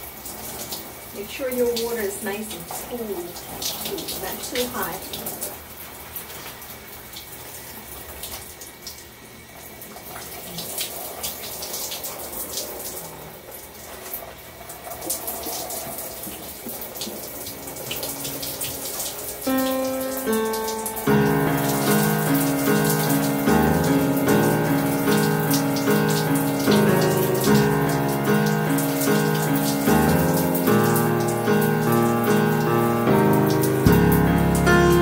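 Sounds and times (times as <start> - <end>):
shower spray splashing: 0.0 - 9.1, 9.8 - 35.0
background music: 19.5 - 35.0.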